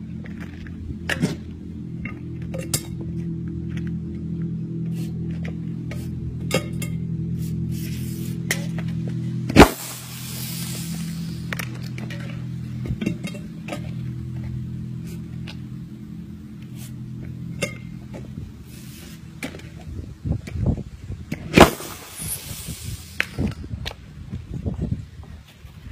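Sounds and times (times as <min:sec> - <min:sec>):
loud bang: 0:09.5 - 0:11.6, 0:21.5 - 0:23.2.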